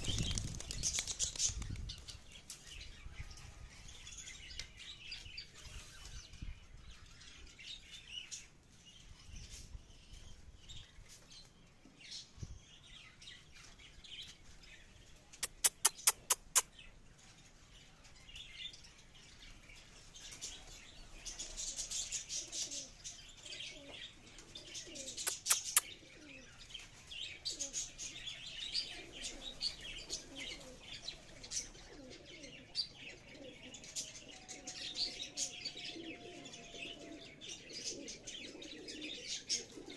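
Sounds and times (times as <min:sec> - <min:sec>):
pigeons flapping wings: 0:00.0 - 0:02.4
pigeons chirping: 0:00.0 - 0:39.9
pigeons cooing: 0:20.3 - 0:39.9.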